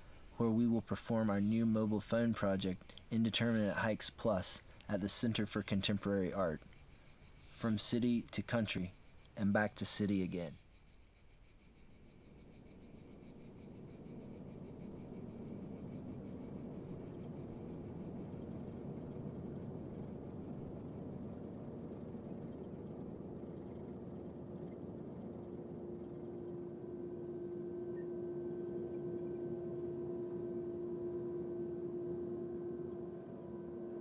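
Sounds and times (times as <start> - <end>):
steady low tone: 0.0 - 6.7, 11.7 - 34.0
insects chirring: 0.0 - 34.0
low steady noise: 0.0 - 34.0.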